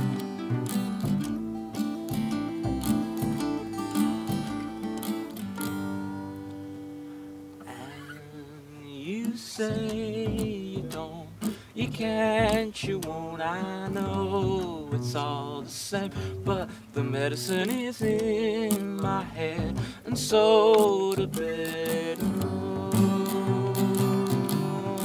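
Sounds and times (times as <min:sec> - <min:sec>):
acoustic guitars strummed and picked: 0:00.0 - 0:25.0
man singing: 0:07.6 - 0:25.0.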